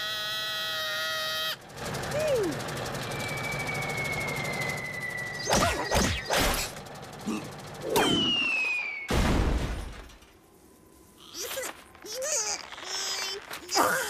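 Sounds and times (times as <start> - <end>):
cartoon motor whine: 0.0 - 9.2
falling whistle: 3.0 - 6.0, 8.0 - 9.2
loud crash: 9.0 - 10.2.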